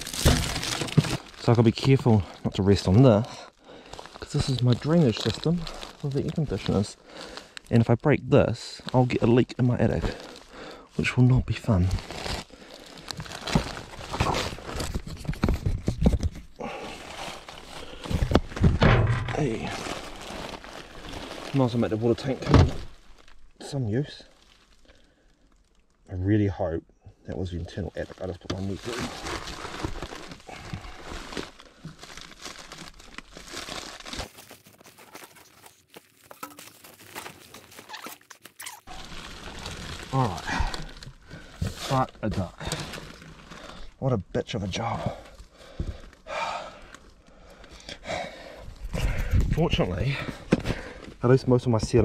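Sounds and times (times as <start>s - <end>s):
rustling: 8.6s - 25.9s, 27.4s - 44.0s.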